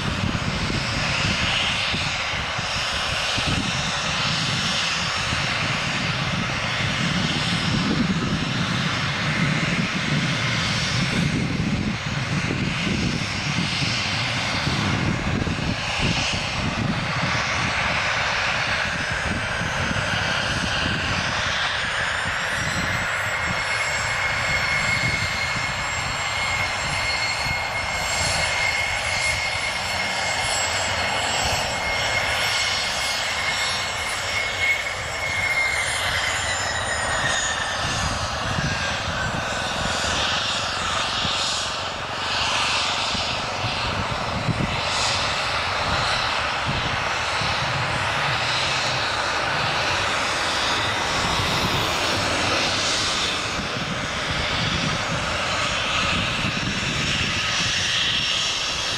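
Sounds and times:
jet engines whining: 0.0s - 58.9s.

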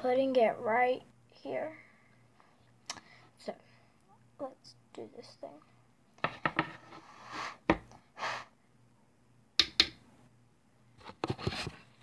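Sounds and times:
brush rubbing scrapes: 6.7s - 7.6s
sharp clicks and taps: 9.6s - 10.0s.

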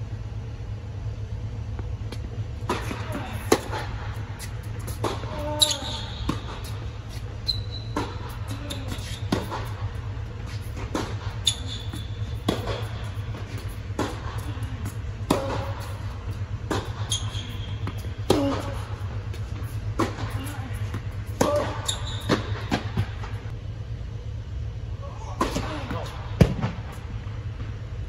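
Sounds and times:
steady low hum: 0.0s - 28.0s
tennis ball bouncing: 2.1s - 23.3s
racket hitting tennis ball: 2.6s - 23.4s
sneaker squeaks on court: 5.3s - 6.8s, 7.4s - 9.6s, 11.3s - 13.0s, 16.9s - 18.0s, 21.6s - 22.6s.

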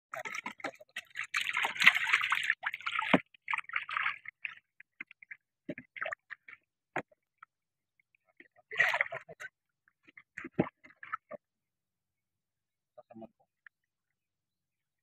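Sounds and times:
water splashing and sloshing: 0.1s - 11.5s.

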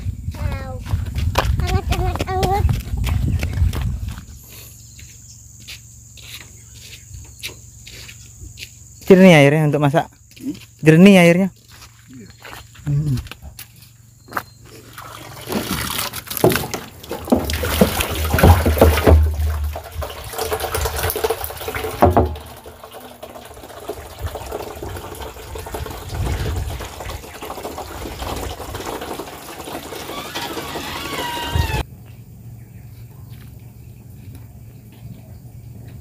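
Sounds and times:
water running into plastic barrel: 14.8s - 31.8s
knocks and bumps: 16.3s - 23.4s.

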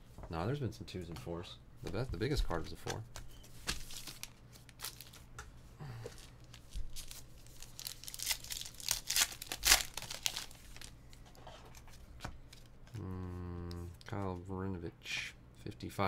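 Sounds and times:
wrappers crinkling: 3.6s - 5.3s, 6.2s - 11.0s
card pack wrappers ripping: 3.7s - 5.2s, 6.2s - 10.9s.

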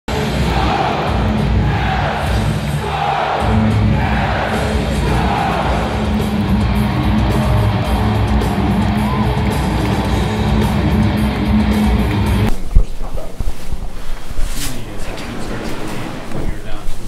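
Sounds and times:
rock music with electric guitar: 3.4s - 12.5s.

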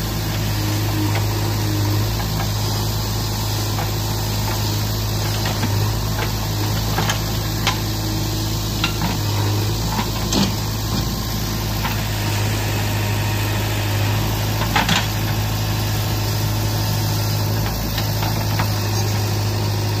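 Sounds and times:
backhoe digging soil: 0.0s - 20.0s
diesel engine running: 0.0s - 20.0s.

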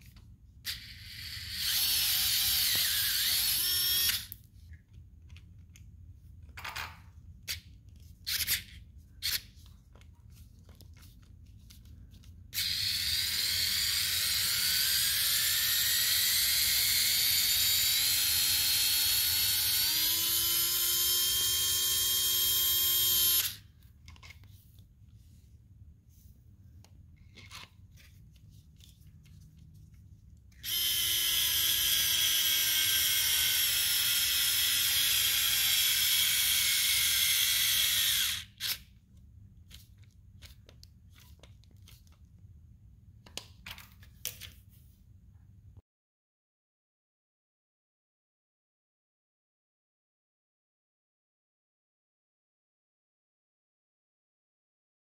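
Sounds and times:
electric screwdriver motor whining: 0.7s - 4.4s, 12.6s - 23.6s, 30.6s - 38.9s.

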